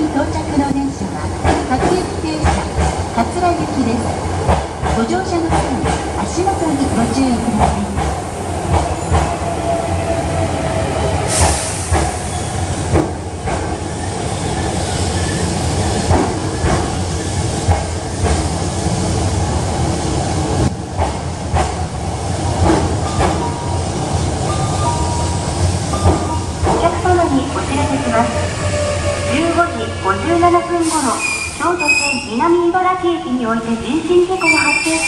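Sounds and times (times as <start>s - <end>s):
train rolling rumble: 0.0s - 35.0s.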